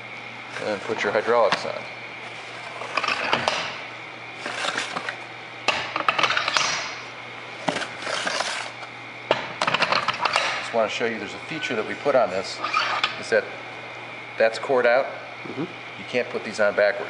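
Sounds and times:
metal scraping on metal: 12.4 - 13.2.

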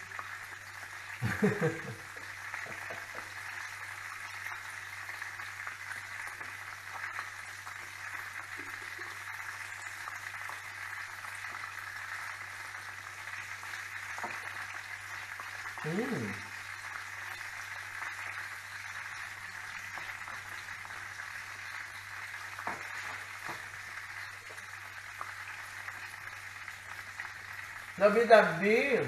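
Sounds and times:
chicken sizzling in hot oil: 0.0 - 29.0.

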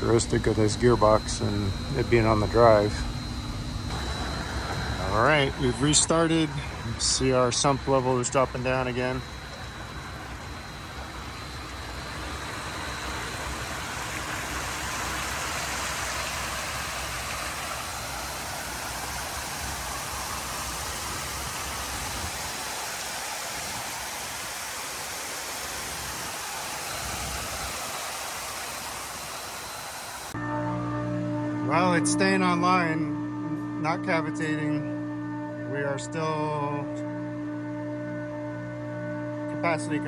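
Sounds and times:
water falling and splashing: 3.9 - 30.4.

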